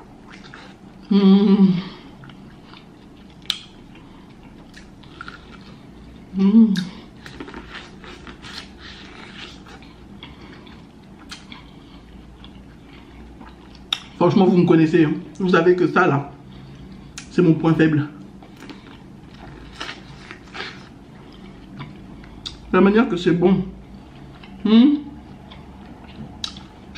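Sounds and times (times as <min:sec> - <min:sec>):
person chewing corn: 0:00.2 - 0:01.2, 0:01.9 - 0:14.2, 0:18.4 - 0:22.7, 0:25.2 - 0:26.9
person humming mmm: 0:01.0 - 0:02.1, 0:06.3 - 0:07.1, 0:24.6 - 0:25.2.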